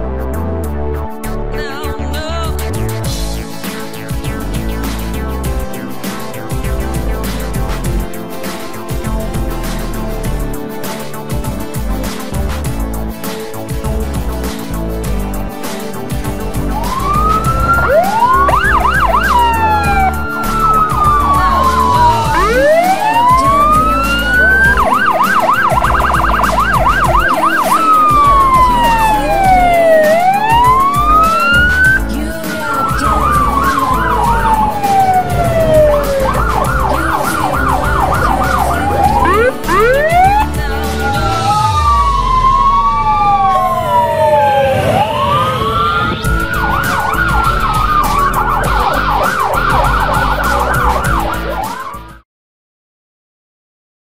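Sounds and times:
police siren wailing and yelping: 0:16.6 - 0:52.2
low rumble: 0:33.0 - 0:44.2.

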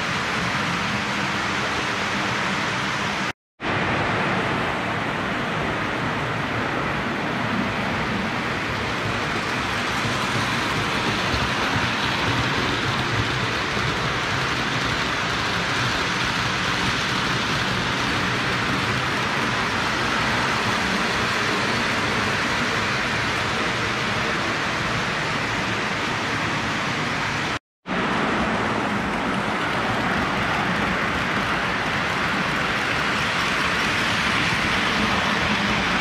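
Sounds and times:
toy trains rolling on track: 0:08.6 - 0:27.4, 0:28.3 - 0:36.0.

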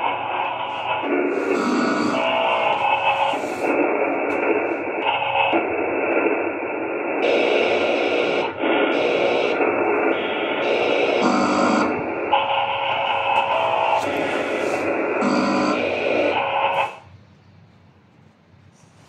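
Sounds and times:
radio static sweeping stations: 0:00.0 - 0:17.1.

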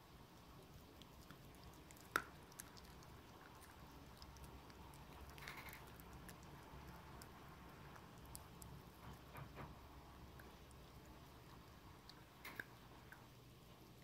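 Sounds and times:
puppy chewing: 0:00.0 - 0:14.0.

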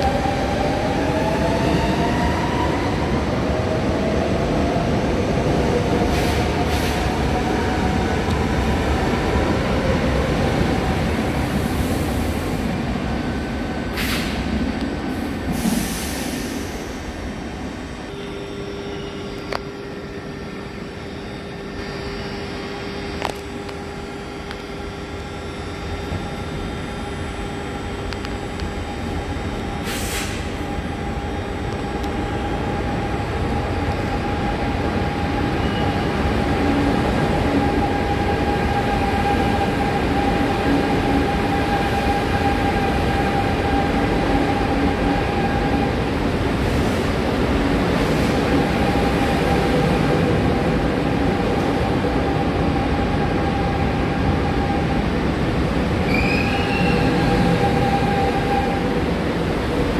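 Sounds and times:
electric train rumble and whine: 0:00.0 - 0:59.9
short hiss: 0:29.9 - 0:30.5.

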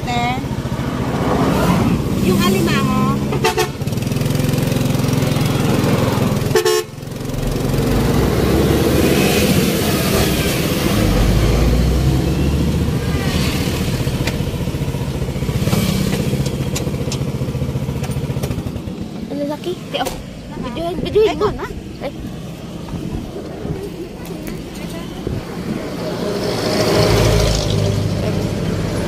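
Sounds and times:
motorcycle engine running: 0:00.0 - 0:26.2
wind rushing: 0:00.7 - 0:02.6.

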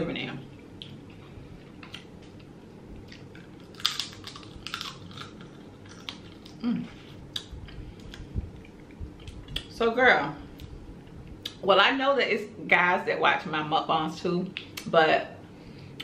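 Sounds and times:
electric fan hum: 0:00.0 - 0:16.0
crab shell cracking: 0:03.1 - 0:06.6.

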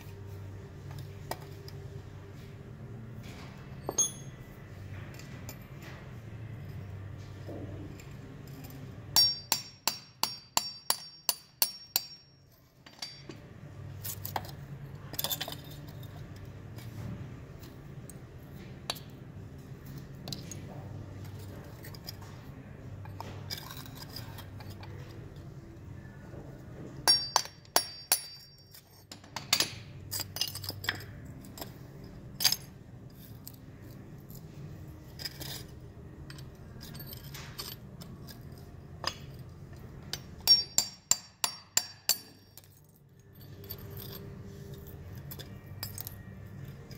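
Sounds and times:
steady low hum: 0:00.0 - 0:46.9
hammer striking steel chisel: 0:03.9 - 0:04.4, 0:09.1 - 0:13.4, 0:27.0 - 0:31.1, 0:40.1 - 0:42.8
chisel scraping crumbling mold: 0:23.1 - 0:25.2.

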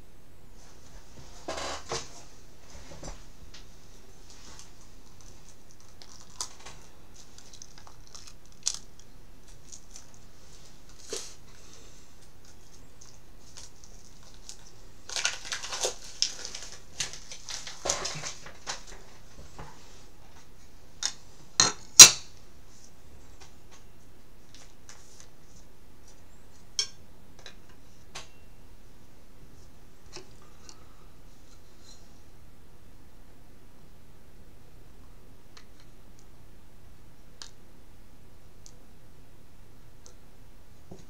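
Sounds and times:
cards rustling: 0:12.2 - 0:18.9.

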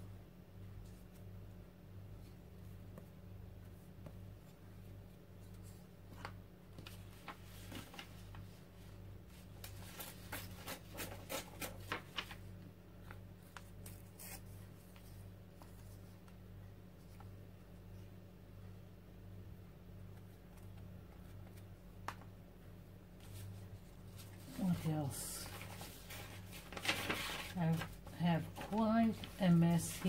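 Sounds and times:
paper rustling: 0:05.4 - 0:16.4, 0:23.2 - 0:30.0.

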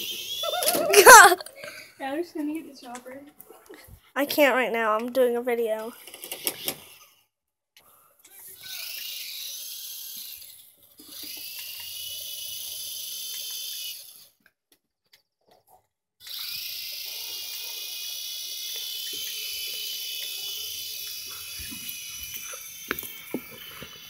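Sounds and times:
toy helicopter rotor whine: 0:00.0 - 0:02.0, 0:05.8 - 0:07.3, 0:08.2 - 0:14.4, 0:16.2 - 0:24.0.

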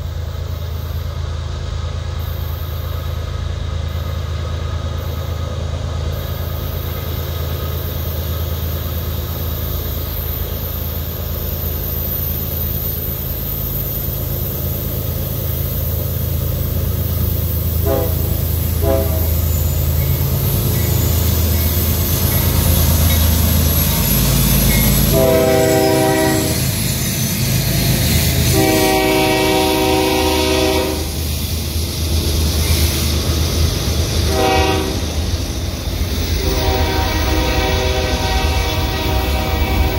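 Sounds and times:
diesel locomotives rumbling: 0:00.0 - 0:39.9
locomotive air horn: 0:17.8 - 0:19.6, 0:25.0 - 0:26.7, 0:28.4 - 0:31.2, 0:34.2 - 0:35.2, 0:36.4 - 0:39.9.

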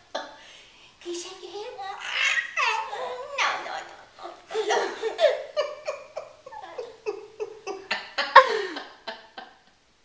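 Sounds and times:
baby giggling: 0:02.0 - 0:08.8.

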